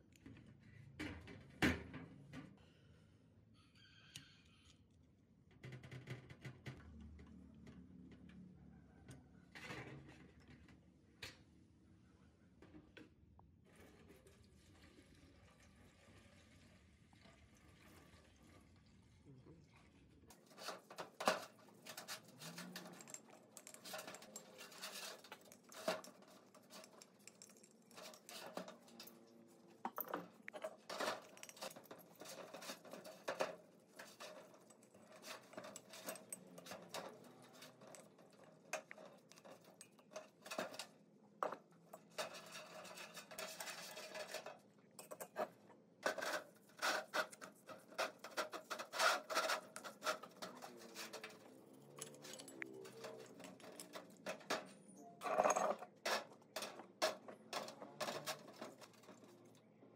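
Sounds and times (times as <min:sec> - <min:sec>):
scraping on metal: 0:20.4 - 0:59.4
metal parts clinking: 0:20.5 - 0:40.9, 0:46.2 - 0:59.4.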